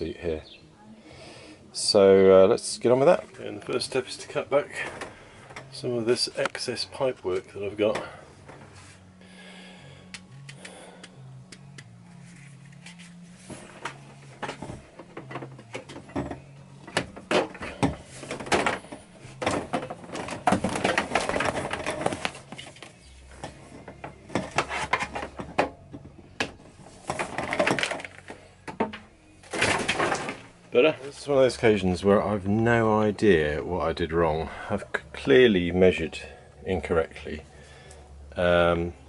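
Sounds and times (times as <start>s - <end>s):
plastic pipes rustling and knocking: 2.9s - 9.0s, 12.2s - 31.6s.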